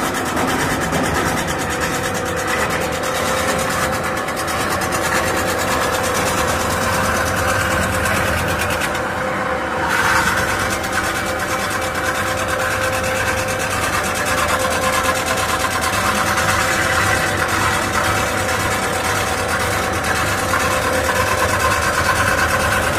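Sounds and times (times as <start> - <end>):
metal-spinning lathe running: 0.0 - 22.9
high whine: 2.7 - 12.7.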